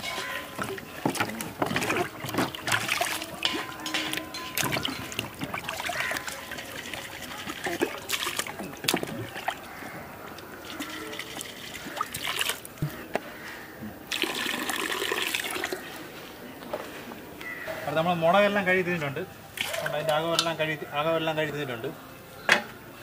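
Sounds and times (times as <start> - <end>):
water pouring and splashing: 0.0 - 13.0, 14.1 - 15.9, 19.5 - 20.2
gush of water: 0.6 - 9.8, 10.6 - 12.8, 14.1 - 15.8, 19.6 - 20.0.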